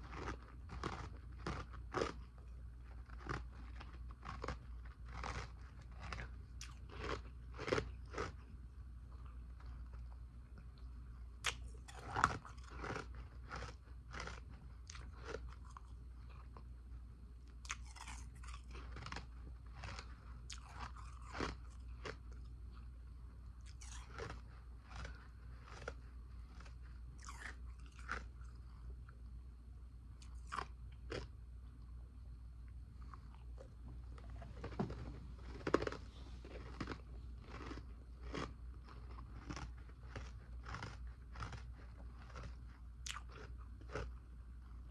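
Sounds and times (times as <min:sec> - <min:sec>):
person crunching ice: 0:34.2 - 0:42.5.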